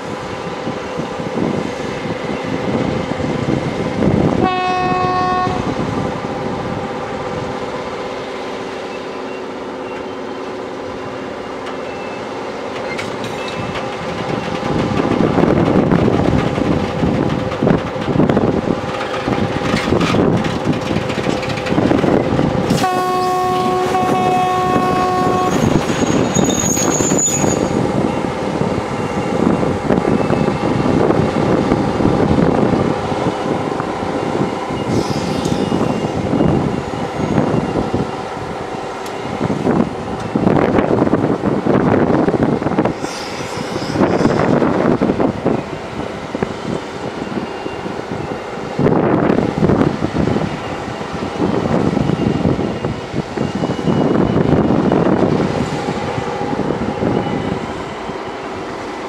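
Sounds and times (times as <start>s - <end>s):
train horn blast: 4.4s - 5.8s, 22.7s - 27.8s
high squeal: 25.5s - 28.2s, 34.7s - 37.9s, 43.0s - 44.6s.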